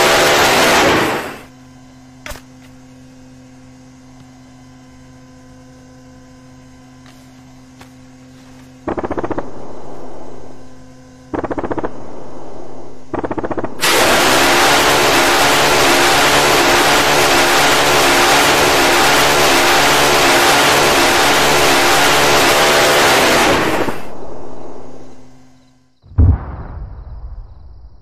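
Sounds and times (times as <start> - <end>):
crackling blasts: 0.0 - 1.5, 8.8 - 24.8, 26.1 - 28.0
loud noise: 0.0 - 1.5, 8.9 - 25.3
faint steady hum: 0.9 - 13.8, 23.6 - 26.0.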